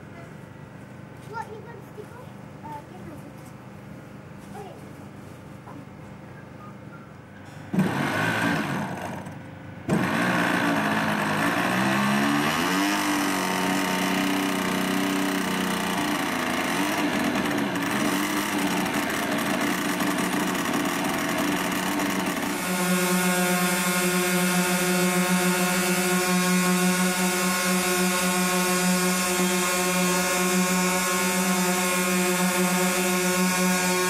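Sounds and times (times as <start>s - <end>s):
model aircraft motors running: 7.7s - 34.0s.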